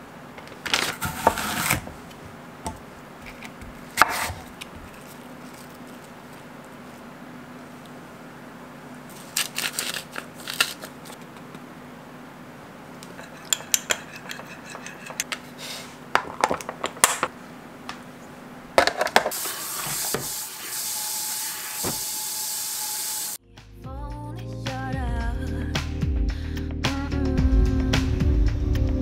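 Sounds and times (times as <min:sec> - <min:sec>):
spoon clinking glass bowl: 0:13.2 - 0:15.3
plastic containers clicking shut: 0:16.2 - 0:17.3.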